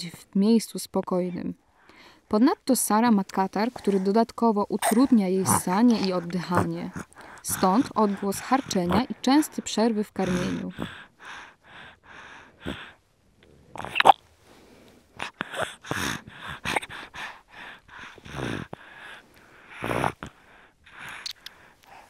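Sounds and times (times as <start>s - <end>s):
baby sucking: 3.6s - 4.1s, 4.7s - 9.1s, 13.7s - 14.2s, 15.2s - 17.0s, 19.8s - 20.4s, 21.0s - 22.0s
baby snuffly rattling breaths: 3.6s - 13.0s.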